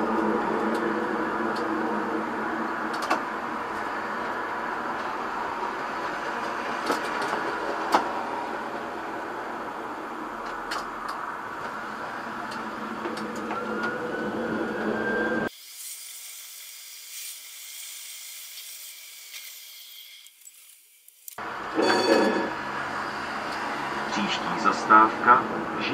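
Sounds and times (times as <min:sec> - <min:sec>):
rising whine: 0:00.0 - 0:06.1, 0:08.4 - 0:15.5
tram running: 0:00.0 - 0:15.5, 0:21.4 - 0:25.9.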